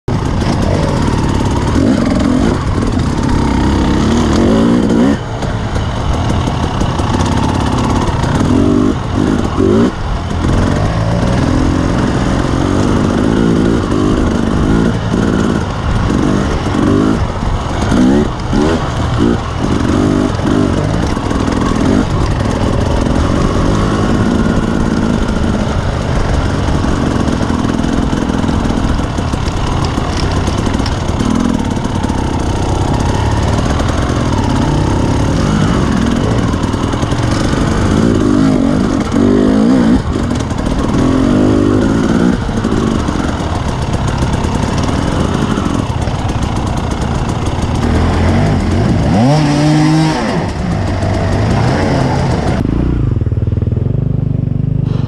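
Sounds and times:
dirt bike engine revving: 0.1s - 53.9s.

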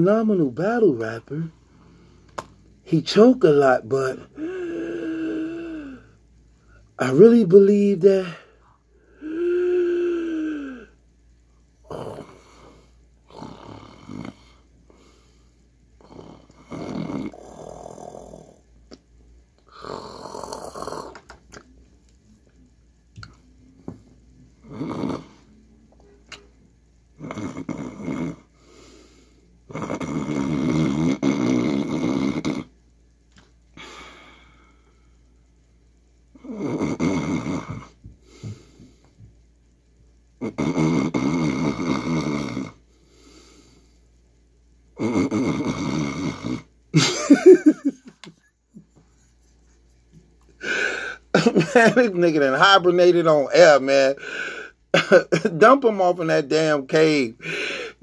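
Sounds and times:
quiet breathing: 1.5s - 2.7s, 4.2s - 7.0s, 12.2s - 16.6s, 28.5s - 29.6s, 33.7s - 35.4s, 37.9s - 39.4s, 42.8s - 44.3s, 48.8s - 51.3s, 54.2s - 54.9s, 57.4s - 58.0s
man imitating snoring: 3.0s - 6.2s, 9.1s - 11.0s, 11.8s - 15.2s, 16.0s - 18.6s, 19.6s - 21.2s, 24.6s - 25.5s, 27.2s - 29.0s, 29.7s - 32.7s, 36.4s - 38.8s, 40.4s - 42.8s, 45.0s - 46.7s, 50.6s - 52.7s.

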